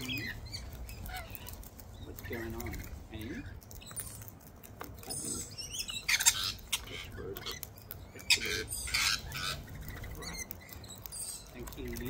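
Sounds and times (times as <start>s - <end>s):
cockatoo harsh squawks: 0.0s - 1.7s, 5.1s - 11.6s
cockatoos crunching peanut shells: 0.0s - 12.0s.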